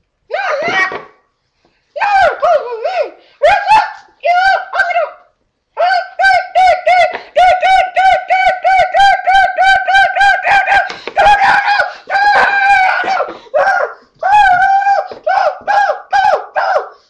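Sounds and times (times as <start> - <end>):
child screaming: 0.3 - 1.1, 2.0 - 5.2, 5.8 - 16.9
child squealing: 9.9 - 16.9.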